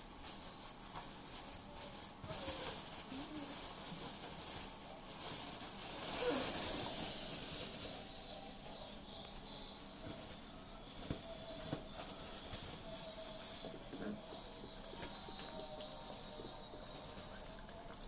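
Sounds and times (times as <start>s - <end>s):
steady hiss: 0.0s - 17.9s
puppies playing and wrestling: 0.0s - 18.0s
puppy whining: 6.0s - 7.8s.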